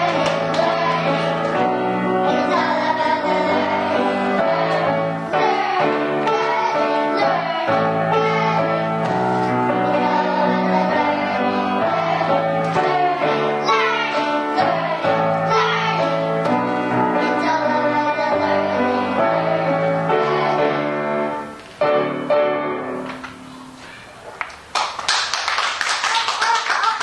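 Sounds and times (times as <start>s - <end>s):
children singing: 0.0s - 21.3s
piano accompaniment: 0.0s - 24.7s
applause: 24.4s - 27.0s.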